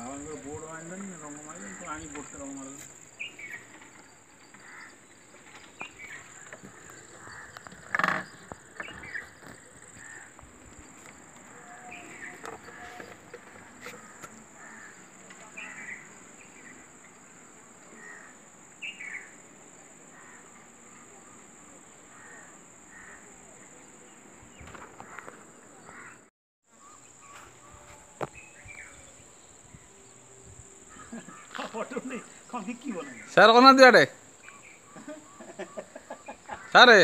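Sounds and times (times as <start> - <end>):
high-pitched insect drone: 0.0 - 23.4.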